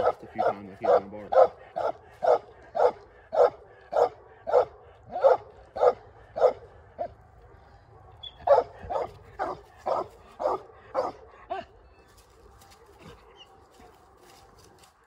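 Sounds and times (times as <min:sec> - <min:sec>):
dog barking: 0:00.0 - 0:07.1, 0:08.2 - 0:11.7.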